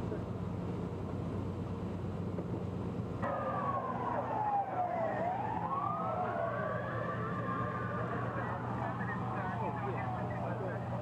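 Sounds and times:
low vehicle engine hum: 0:00.0 - 0:11.0
emergency vehicle siren wailing: 0:03.2 - 0:11.0.

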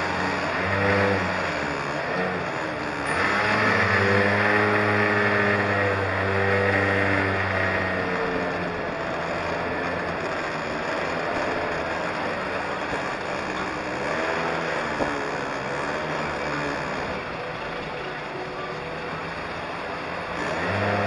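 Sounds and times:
go-kart engine running: 0:00.0 - 0:21.0
wind and road noise: 0:00.0 - 0:21.0.

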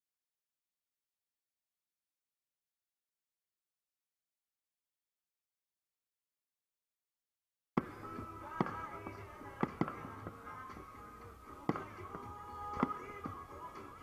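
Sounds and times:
firework shells bursting: 0:07.8 - 0:13.8
music: 0:07.8 - 0:14.0.

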